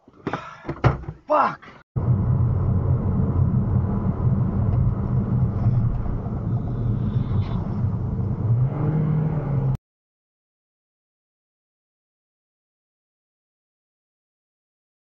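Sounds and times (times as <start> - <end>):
car engine and tyres rumbling: 2.0 - 9.8
oncoming vehicles passing: 2.0 - 9.8.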